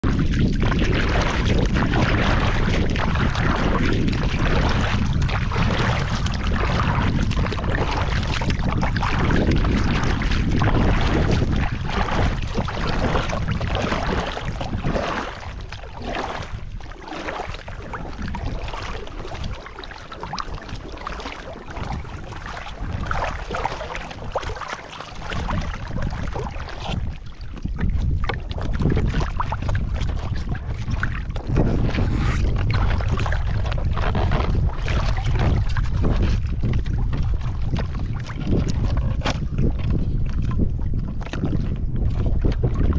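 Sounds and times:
rushing water: 0.0s - 42.9s
wind buffeting microphone: 0.0s - 42.9s.

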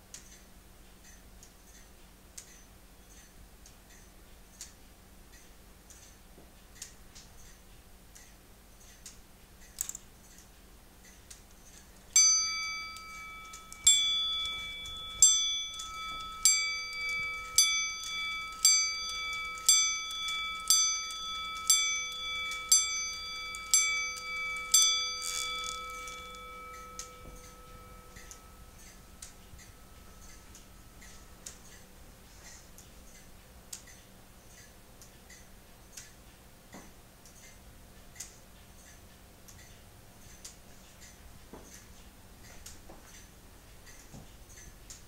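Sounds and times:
clock ticking faintly: 0.0s - 45.0s
clock bell ringing strokes: 12.2s - 32.0s.

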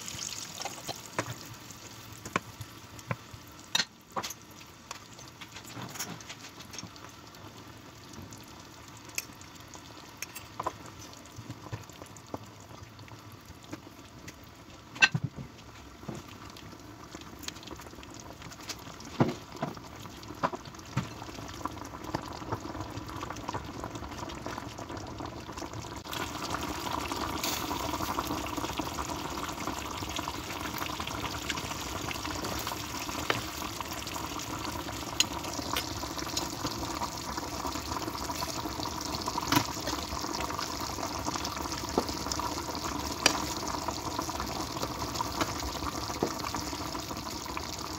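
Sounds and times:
sauce bubbling in a frying pan: 0.0s - 47.9s.

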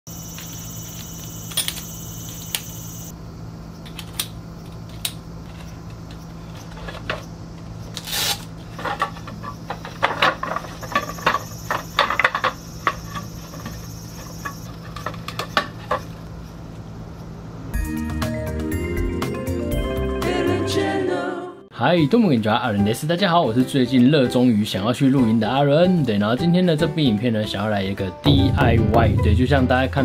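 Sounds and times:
high insect-like trill: 0.1s - 3.8s, 9.2s - 16.2s.

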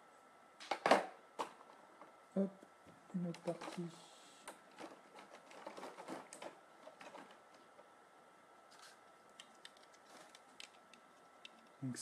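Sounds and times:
plastic parts clicking: 3.2s - 7.8s, 9.3s - 11.8s
packaging rustling: 4.6s - 7.9s, 8.7s - 11.8s.

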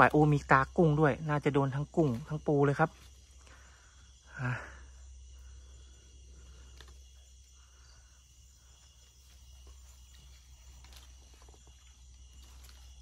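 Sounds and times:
crickets and insects chirping: 0.0s - 13.0s.

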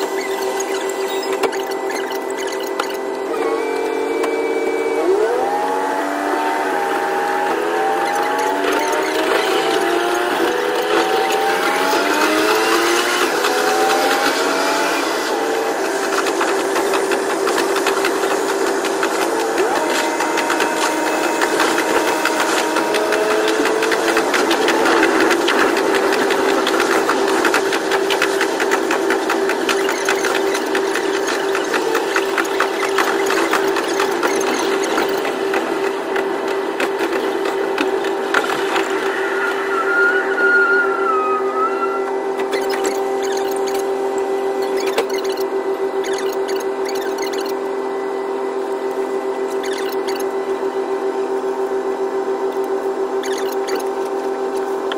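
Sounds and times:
diesel railcar engine: 0.0s - 54.9s
wheels clicking on rails: 6.9s - 47.6s.

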